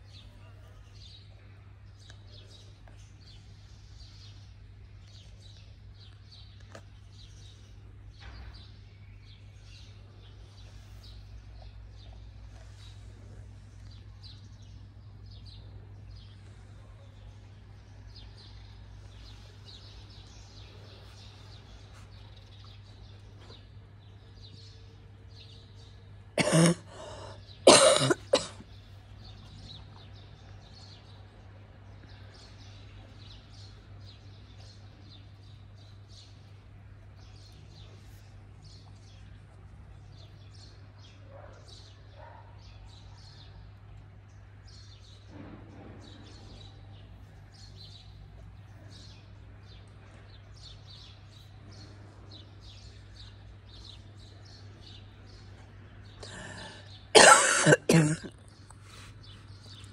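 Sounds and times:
small birds chirping: 0.0 - 59.9
person coughing: 26.4 - 28.6, 56.2 - 58.4.

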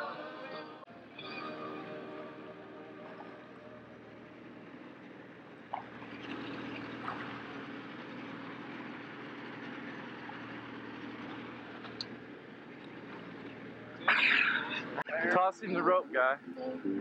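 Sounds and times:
motorboat engine running: 1.0 - 15.0.

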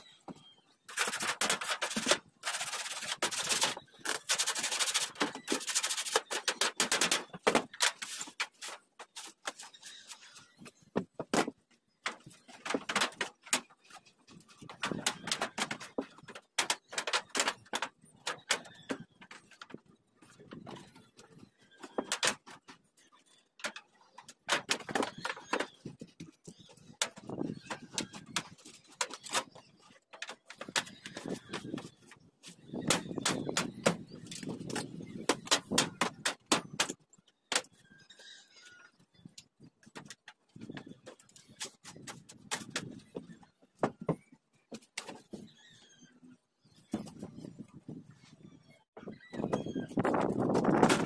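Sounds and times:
metal sheet scraping and crinkling: 0.9 - 37.0, 49.4 - 51.0.

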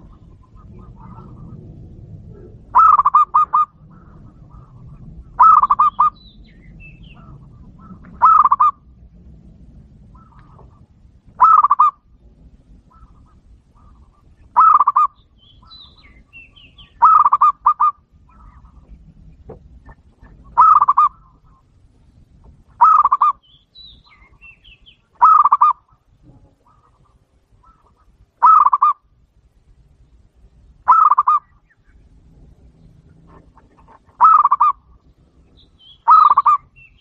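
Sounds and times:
dove cooing: 0.0 - 6.2, 6.9 - 8.9, 10.0 - 12.1, 12.8 - 19.1, 19.8 - 21.7, 22.8 - 23.4, 25.2 - 29.0, 30.9 - 31.5, 33.0 - 35.0, 36.0 - 36.8.

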